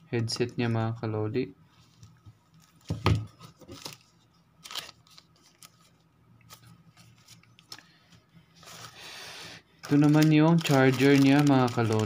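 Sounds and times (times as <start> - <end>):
paper leaflets clicking and rustling: 9.8 - 12.0.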